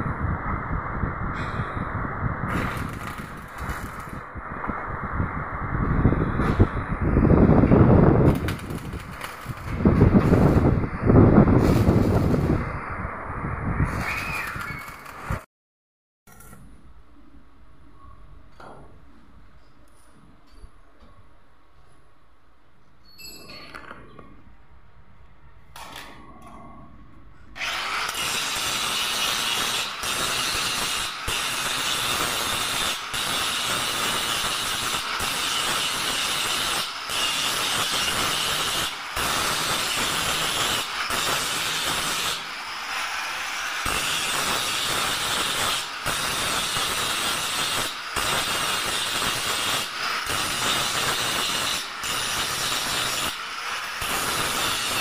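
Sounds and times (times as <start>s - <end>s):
angle grinder grinding steel: 27.6s - 55.0s.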